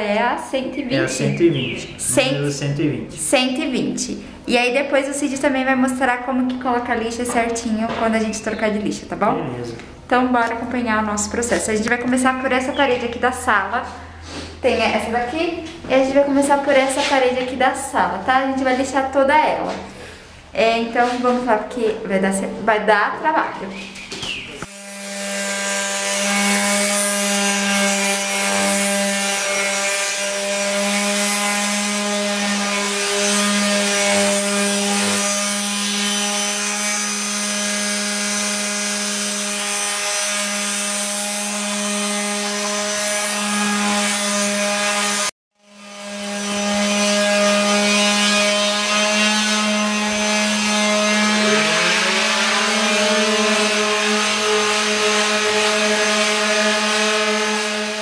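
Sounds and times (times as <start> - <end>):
electric sander on plaster: 0.6 - 2.6, 24.6 - 58.0.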